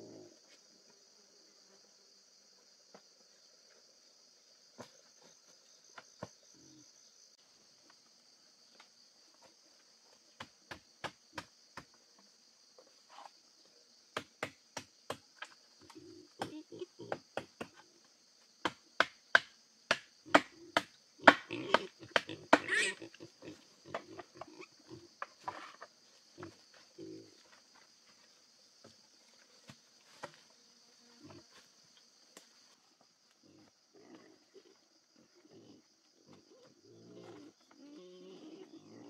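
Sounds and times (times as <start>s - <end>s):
forest insects buzzing: 0.0s - 39.0s
machete chopping wood: 18.6s - 22.7s.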